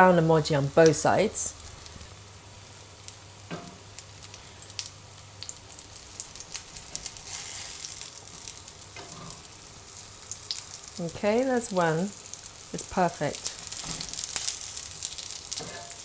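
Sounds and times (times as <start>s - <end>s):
frying sizzle with crackling pops: 0.0s - 16.0s.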